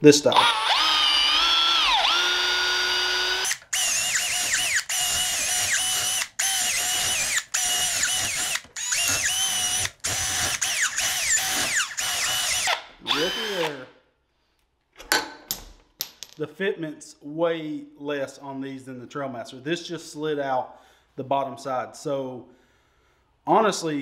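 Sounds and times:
power drill whining: 0.3 - 13.9.

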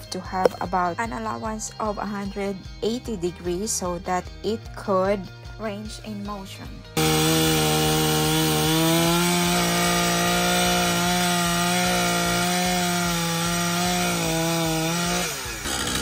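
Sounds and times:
chainsaw cutting wood: 7.0 - 16.0.

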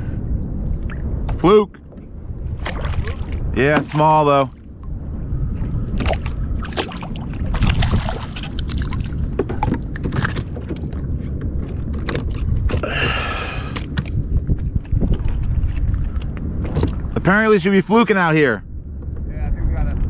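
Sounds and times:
wind rumbling on microphone: 0.0 - 20.0
water splashes: 2.5 - 13.9.

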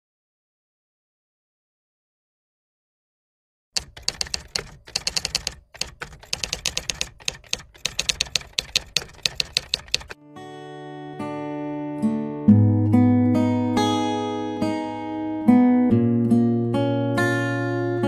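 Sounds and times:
typewriter key clicks: 3.8 - 10.2
guitar music: 10.2 - 18.0.

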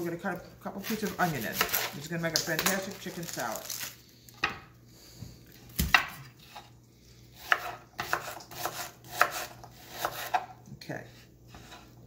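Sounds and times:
knife slicing onion: 0.7 - 3.4, 7.3 - 12.0.

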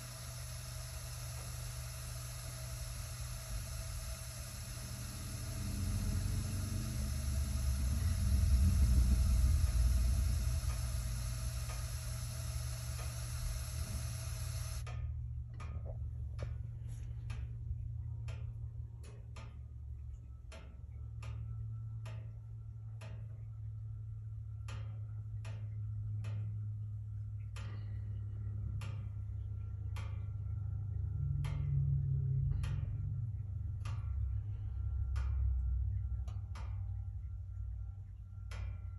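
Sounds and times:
burner ignition whoomph: 0.0 - 14.8
burner humming: 0.0 - 14.9
sharp ticks: 0.0 - 16.7, 17.3 - 23.8, 27.3 - 37.6, 38.4 - 38.9.

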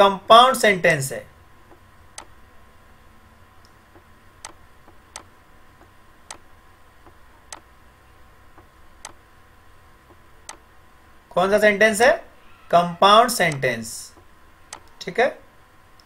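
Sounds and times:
faint steady hum: 0.0 - 16.0
sharp clicks: 1.7 - 2.4, 3.6 - 7.7, 8.5 - 9.2, 10.0 - 10.7, 13.5 - 15.0.

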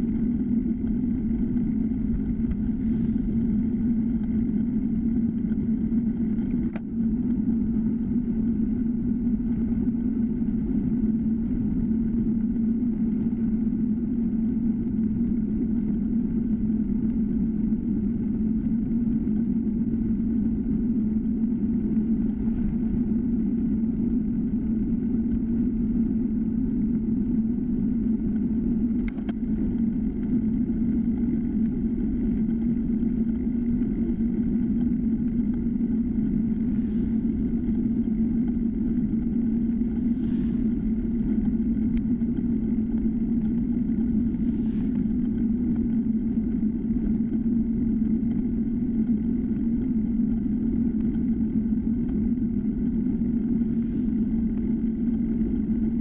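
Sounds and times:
wind rush: 0.0 - 14.3, 20.4 - 26.0, 29.6 - 49.8
bicycle tyres rolling on asphalt: 17.8 - 56.0.

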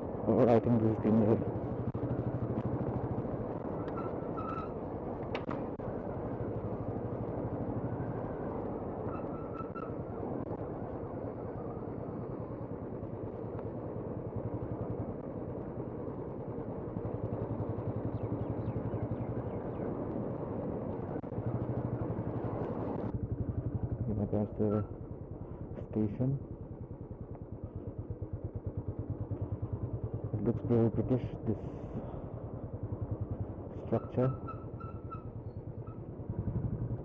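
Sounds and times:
wind and road noise: 0.0 - 37.0
motorcycle engine running: 26.4 - 31.0, 34.4 - 37.0.

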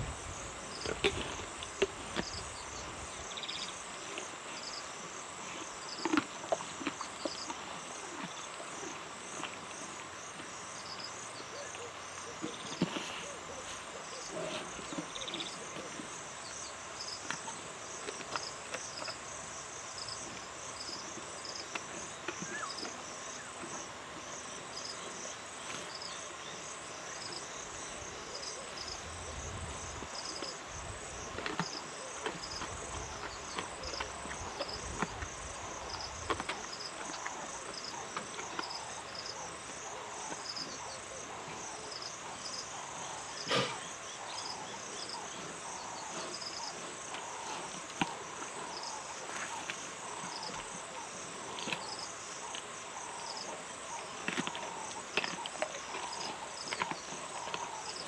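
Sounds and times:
insects chirping: 0.0 - 58.0
cracks and chewing of feeding animal: 5.6 - 10.5, 31.2 - 40.7, 46.2 - 58.0.

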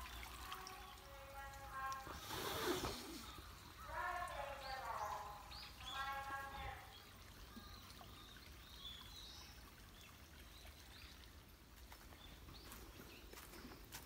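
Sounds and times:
small birds chirping: 0.0 - 14.0
low even hiss: 1.0 - 5.0
soft footsteps: 11.8 - 14.0.

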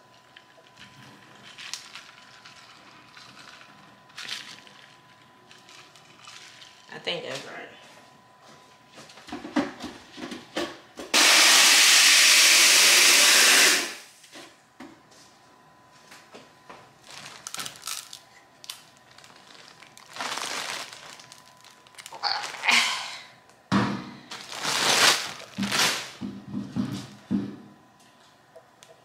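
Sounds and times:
blender running with ice: 11.1 - 14.1.

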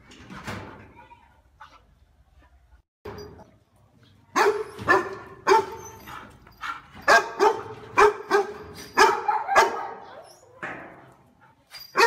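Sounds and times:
dog barking: 4.4 - 5.9, 6.6 - 10.2.

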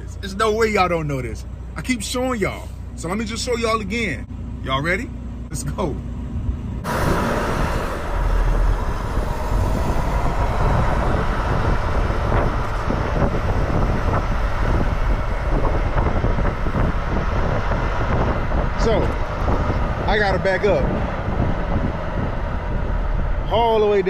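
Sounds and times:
outdoor noise: 0.0 - 24.0
truck engine running: 0.0 - 24.0.

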